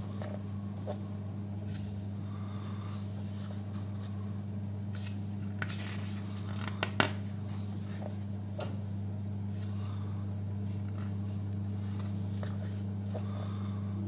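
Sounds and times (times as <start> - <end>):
steady low hum: 0.0 - 14.0
book pages rustling: 4.9 - 8.3.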